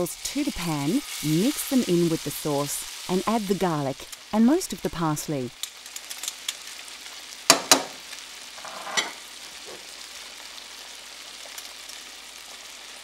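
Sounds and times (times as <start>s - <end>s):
food sizzling in a pan: 0.0s - 13.0s
utensil knocking against pan: 7.5s - 8.0s.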